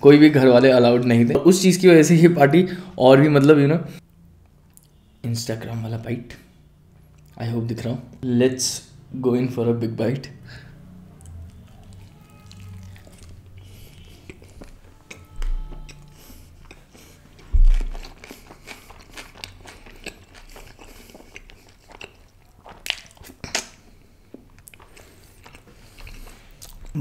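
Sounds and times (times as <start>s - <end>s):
mouth chewing wet clicks: 11.2s - 27.0s
dull low thumps: 17.4s - 18.0s.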